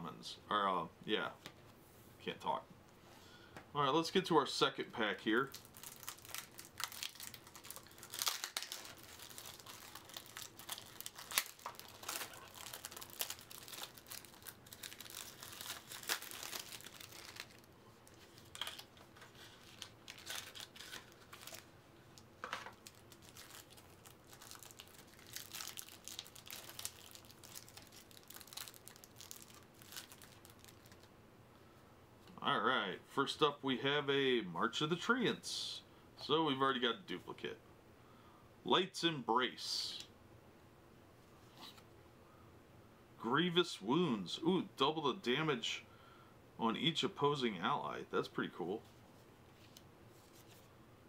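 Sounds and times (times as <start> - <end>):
packaging crinkling and tearing: 5.4 - 31.1.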